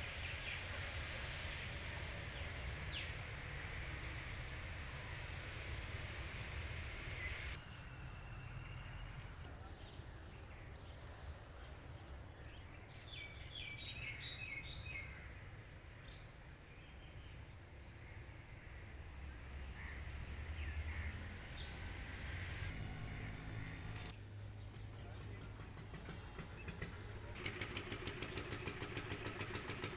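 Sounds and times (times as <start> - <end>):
steady hiss: 0.0 - 7.6.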